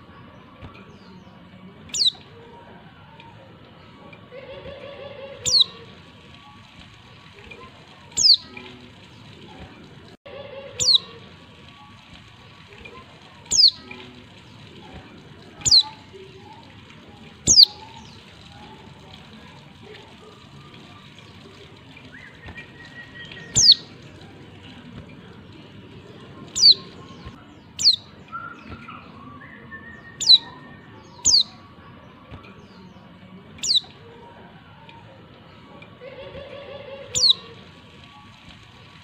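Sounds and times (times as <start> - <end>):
bird giving high-pitched calls: 1.9 - 2.2, 5.3 - 5.8, 8.2 - 8.5, 10.8 - 11.1, 13.5 - 13.8, 15.6 - 16.0, 17.5 - 18.0, 22.6 - 23.9, 26.5 - 27.0, 27.8 - 28.8, 30.1 - 31.6, 33.6 - 33.9, 37.1 - 37.4.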